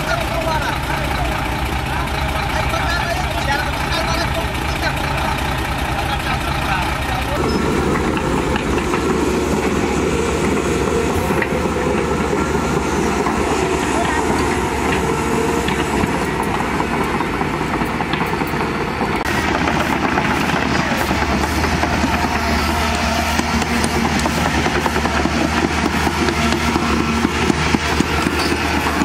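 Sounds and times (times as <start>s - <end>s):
excavator diesel engine running: 0.0s - 29.0s.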